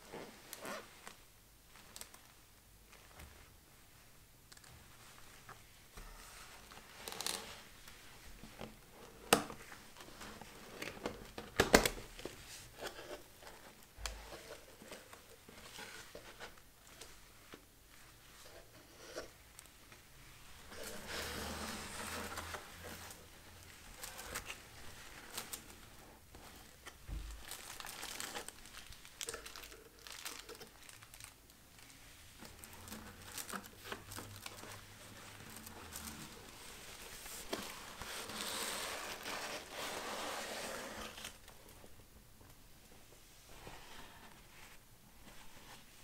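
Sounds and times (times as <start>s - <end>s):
tissue paper crinkling: 19.5s - 41.8s.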